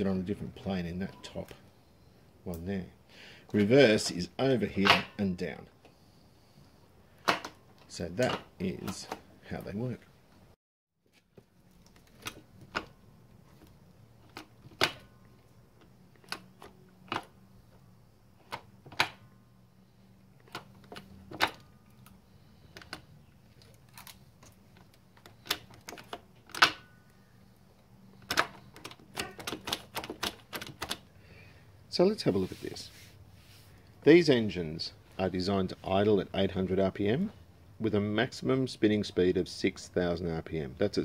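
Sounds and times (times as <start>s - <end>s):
gear lever clicking and clunking: 28.1s - 31.1s.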